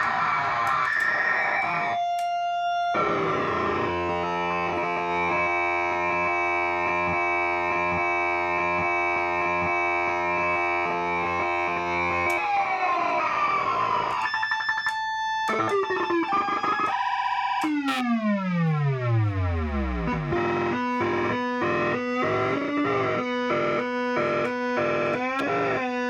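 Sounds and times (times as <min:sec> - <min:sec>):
pulsing electronic chord: 0:02.8 - 0:26.0
glitchy electronic notes: 0:13.0 - 0:26.0
electronic tone sweeping down: 0:17.7 - 0:25.9.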